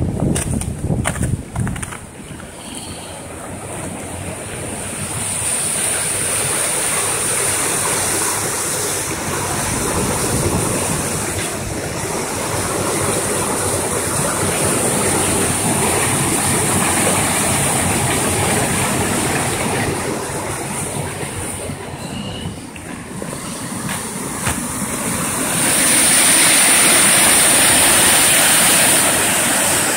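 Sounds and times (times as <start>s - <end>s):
waterfall rushing: 22.6s - 29.9s.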